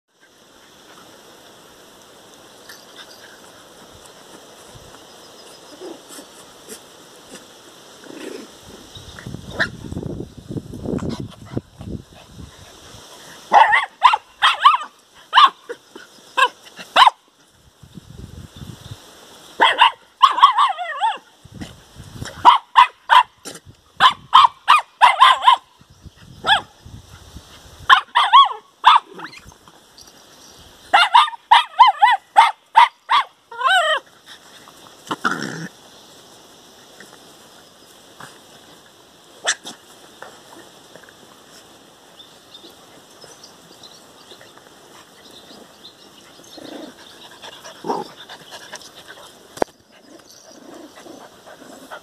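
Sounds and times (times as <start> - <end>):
small dogs barking: 13.4 - 15.8, 16.4 - 17.3, 19.6 - 21.3, 22.4 - 25.8, 26.4 - 26.8, 27.9 - 29.4, 30.9 - 34.0, 39.4 - 39.8.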